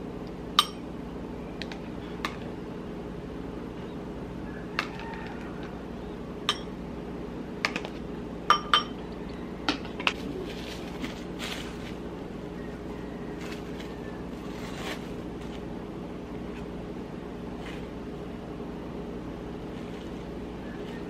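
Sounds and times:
steady low hum: 0:00.0 - 0:21.0
spoon clinking against bowl: 0:08.5 - 0:09.0.

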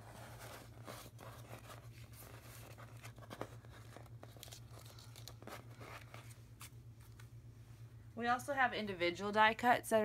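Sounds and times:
rustling of cardstock and plastic: 0:00.0 - 0:07.3
steady low hum: 0:00.0 - 0:10.0.

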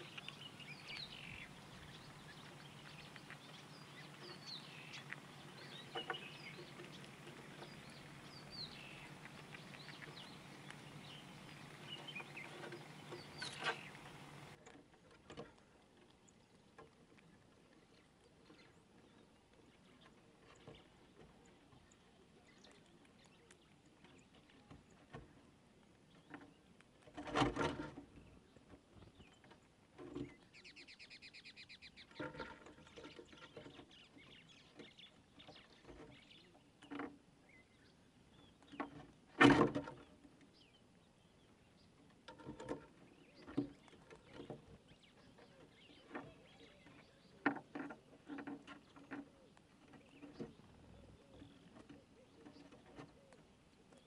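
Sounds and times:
squirrel gnawing clicks and crunches: 0:00.0 - 0:24.8.

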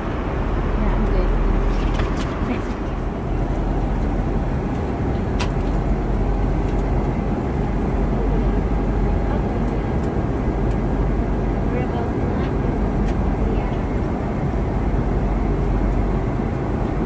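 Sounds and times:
airliner cabin noise: 0:00.0 - 0:17.0.

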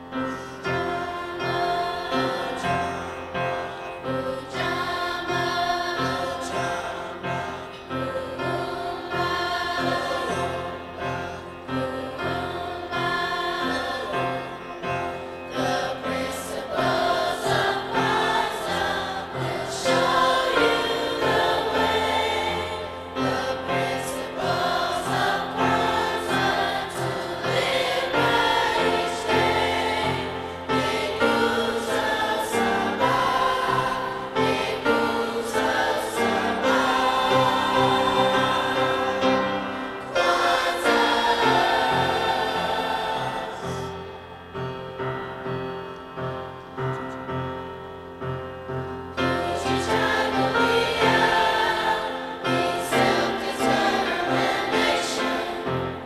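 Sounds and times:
choir singing in parts: 0:00.0 - 0:45.0, 0:49.2 - 0:56.0.

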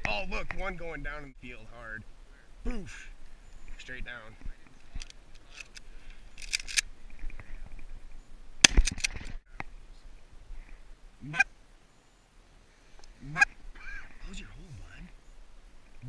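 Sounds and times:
goose honks: 0:13.2 - 0:14.1.

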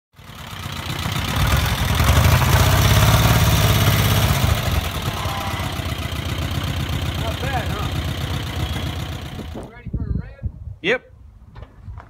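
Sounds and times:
engine idling: 0:00.2 - 0:09.7.

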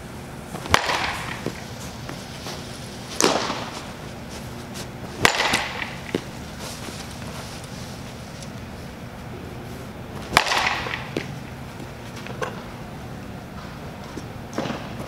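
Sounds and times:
bat cracking against ball: 0:00.5 - 0:08.7, 0:10.2 - 0:12.8, 0:13.4 - 0:15.0.

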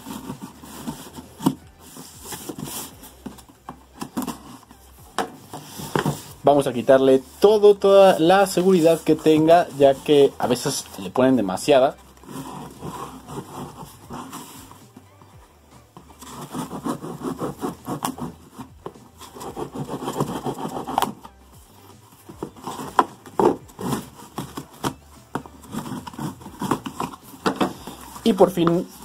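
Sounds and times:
knife cutting packing tape: 0:16.2 - 0:29.0.

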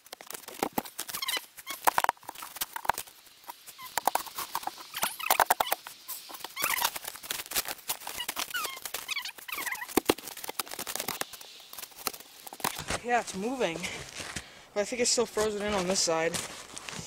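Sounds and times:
short high squeaks: 0:01.0 - 0:02.1, 0:03.5 - 0:12.5.

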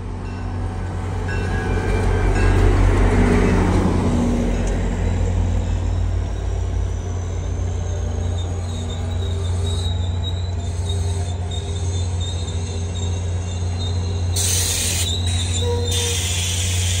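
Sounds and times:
train coaches rumbling past: 0:00.0 - 0:17.0
high wheel squeal: 0:04.8 - 0:17.0.

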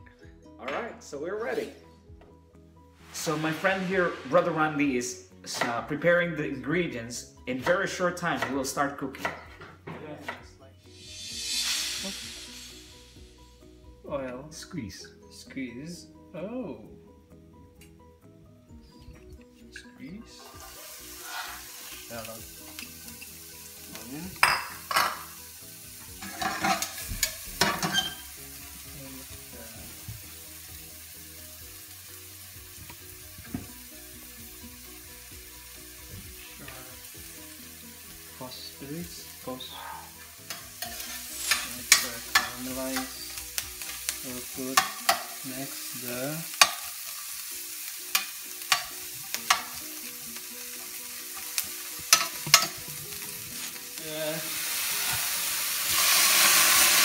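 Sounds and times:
shallots sizzling in hot oil: 0:03.0 - 0:09.5, 0:10.8 - 0:15.0, 0:20.2 - 0:57.0
spatula scraping a pan: 0:20.4 - 0:22.0, 0:26.2 - 0:28.4, 0:40.5 - 0:43.9.

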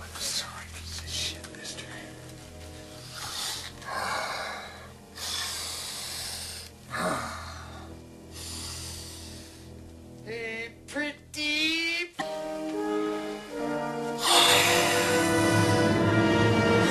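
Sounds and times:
low steady drone: 0:00.0 - 0:10.9, 0:12.2 - 0:16.9
man breathing heavily: 0:02.0 - 0:10.1, 0:14.1 - 0:16.1.

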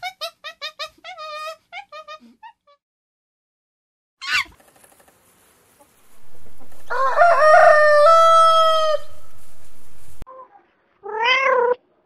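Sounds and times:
high falling squawk: 0:04.2 - 0:04.6, 0:06.0 - 0:10.2
rooster crowing: 0:06.1 - 0:10.2.

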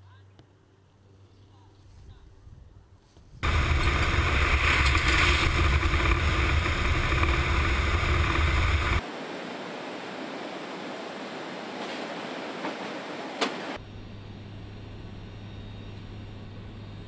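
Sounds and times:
aircraft engines roaring: 0:03.4 - 0:09.2
rushing air through open door: 0:03.4 - 0:13.8.

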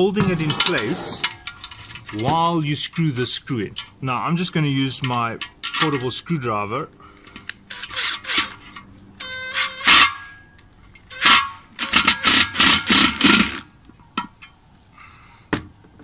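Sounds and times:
electric screwdriver whine: 0:07.7 - 0:08.6, 0:09.2 - 0:10.0.

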